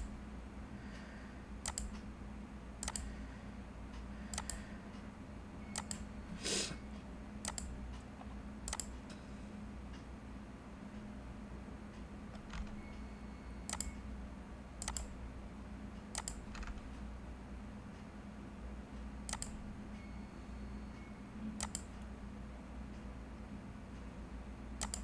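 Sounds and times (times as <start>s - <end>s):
faint low hum: 0.0s - 25.0s
computer mouse clicking: 1.6s - 2.0s, 2.8s - 3.1s, 4.3s - 4.7s, 5.7s - 6.1s, 7.4s - 9.0s, 12.3s - 13.0s, 13.7s - 14.0s, 14.8s - 15.2s, 16.1s - 16.9s, 19.3s - 19.6s, 21.6s - 22.1s, 24.8s - 25.0s.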